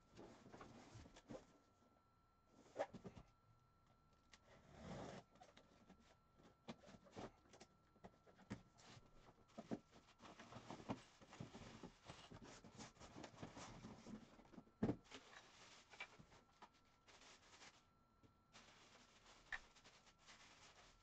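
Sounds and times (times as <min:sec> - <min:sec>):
plastic wrapping rustling: 0:15.0 - 0:17.9, 0:18.5 - 0:21.0.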